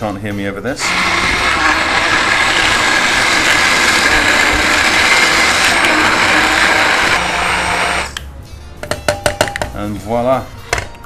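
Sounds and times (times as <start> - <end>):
immersion blender running: 0.8 - 8.2.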